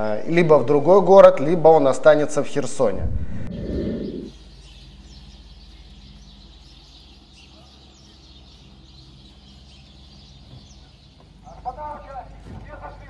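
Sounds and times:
steady low hum: 0.0s - 13.0s
faint bird chirps: 3.2s - 11.6s.

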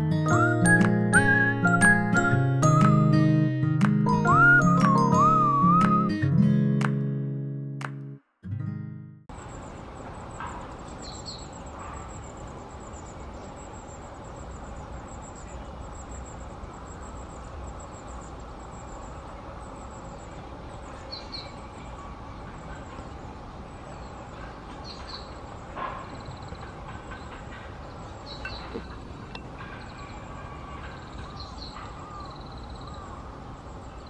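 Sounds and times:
birds calling with high notes: 9.4s - 34.0s.

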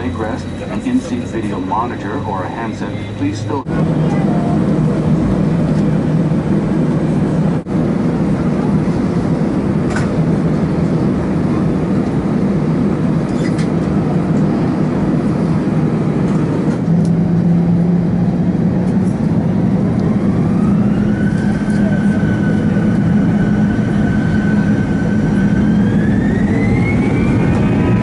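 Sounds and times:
aircraft cabin engine hum: 0.0s - 28.0s
thin rising engine whine: 14.0s - 28.0s.

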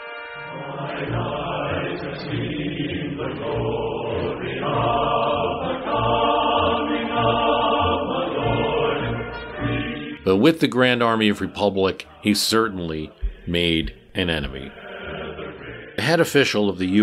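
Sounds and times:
choir chanting: 0.4s - 17.0s
slow low beat: 13.1s - 14.8s.

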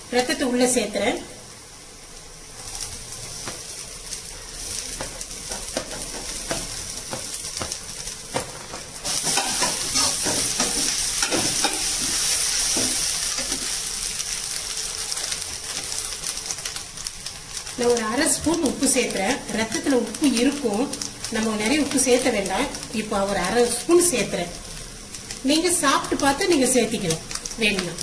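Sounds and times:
food sizzling in oil: 0.0s - 28.0s
spatula scraping plate and pan: 9.1s - 13.6s.

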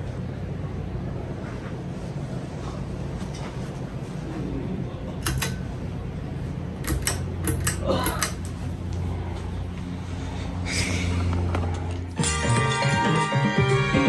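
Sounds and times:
ceiling fan humming: 0.0s - 14.0s
pull-chain switch clicks: 5.2s - 5.6s, 6.8s - 8.5s.

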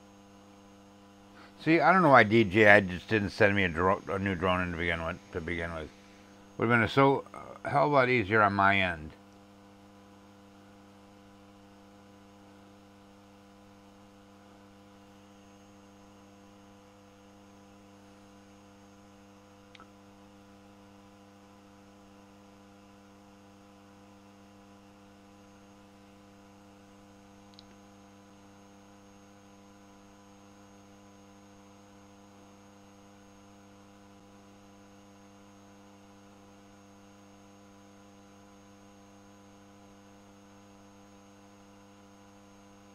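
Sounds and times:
faint electrical hum: 0.0s - 42.9s
tiny ticks: 27.5s - 27.8s.

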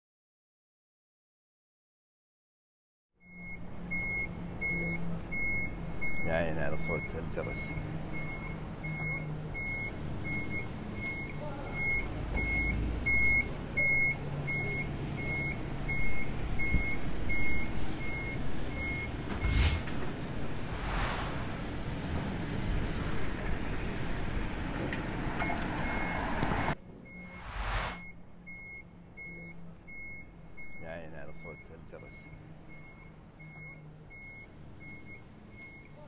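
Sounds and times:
reversing alarm beeping: 3.2s - 19.8s, 25.4s - 26.3s, 27.0s - 36.0s
low engine rumble: 3.4s - 36.0s.

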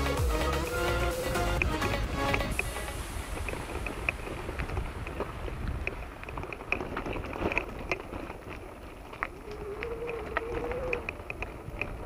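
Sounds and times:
vehicle driving on rough road: 0.0s - 12.0s
clicks and crackles: 1.6s - 12.0s.

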